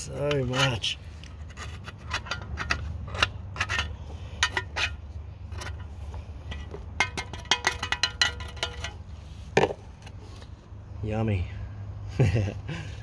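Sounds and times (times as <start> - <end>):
metal rod scraping and tapping: 0.2 - 9.0.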